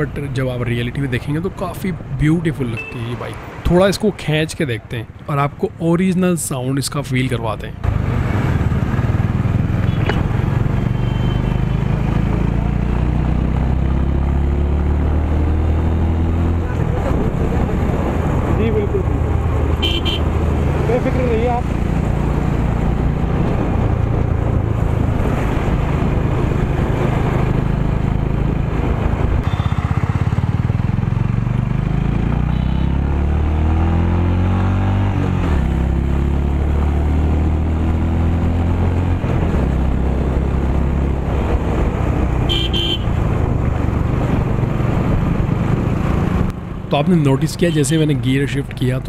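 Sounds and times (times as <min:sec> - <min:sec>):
motorcycle engine accelerating: 0:07.8 - 0:46.9
horn beep: 0:10.8 - 0:11.8, 0:19.8 - 0:20.3, 0:29.4 - 0:30.0, 0:32.5 - 0:33.0, 0:42.5 - 0:43.1.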